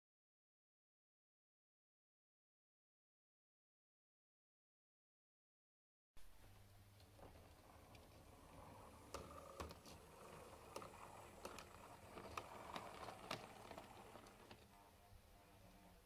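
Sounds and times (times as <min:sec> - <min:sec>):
wheels clicking on track: 0:07.2 - 0:14.7
faint model train motor whir: 0:07.2 - 0:16.0.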